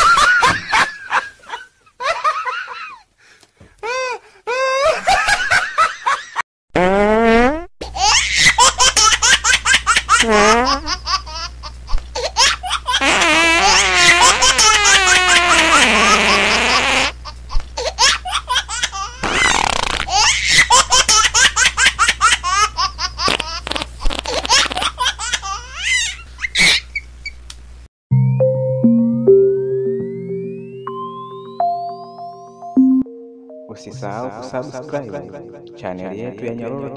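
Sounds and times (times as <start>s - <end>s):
young men laughing: 0.0s - 3.0s, 4.7s - 6.4s.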